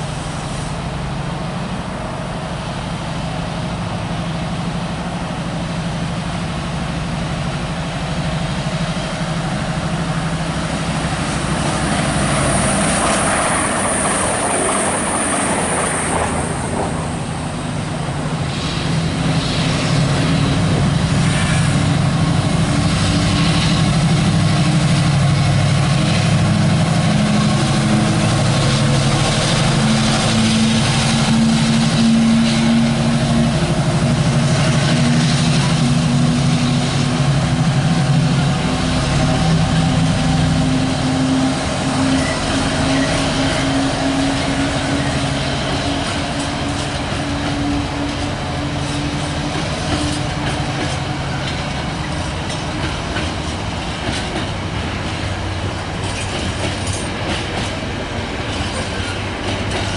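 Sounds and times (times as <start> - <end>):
diesel locomotive under heavy power: 0.0 - 59.9
wagons rolling along rails: 42.0 - 59.9.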